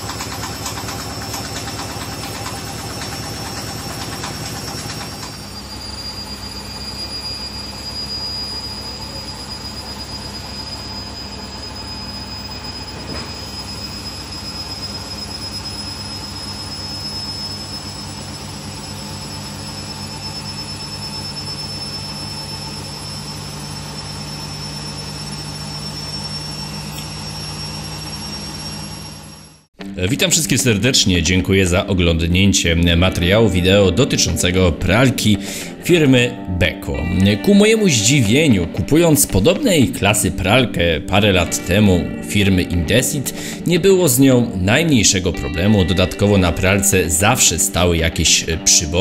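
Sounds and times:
washing machine spinning: 0.0s - 29.7s.

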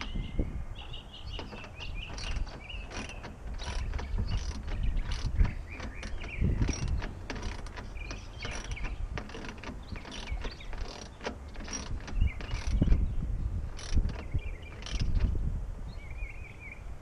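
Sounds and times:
tools clicking and scraping metal: 1.3s - 13.0s, 13.7s - 15.4s.

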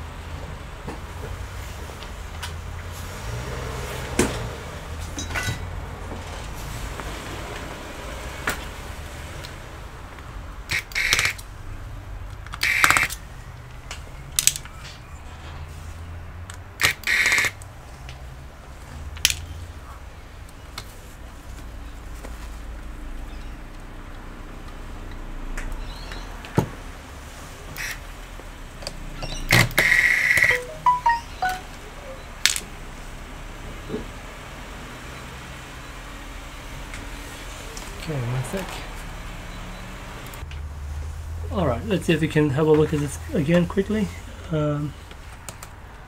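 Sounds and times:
electric screwdriver whirring: 10.7s - 11.4s, 12.6s - 13.1s, 16.8s - 17.5s, 27.8s - 28.0s, 29.6s - 30.5s.

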